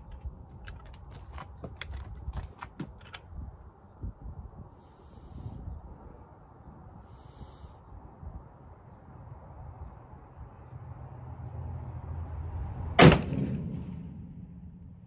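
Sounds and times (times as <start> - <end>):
muzzleloader gunshot: 13.0 - 14.6.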